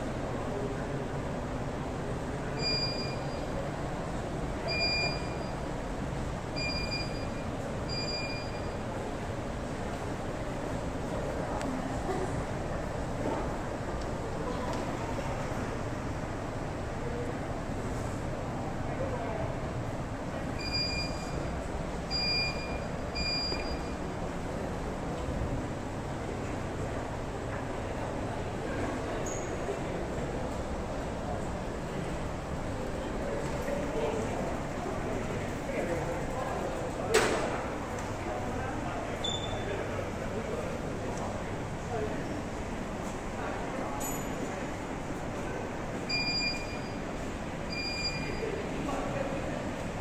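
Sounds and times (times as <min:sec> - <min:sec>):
steady background rush of noise: 0:00.0 - 0:50.0
short high-pitched electronic beeps: 0:02.6 - 0:03.4, 0:47.7 - 0:48.4.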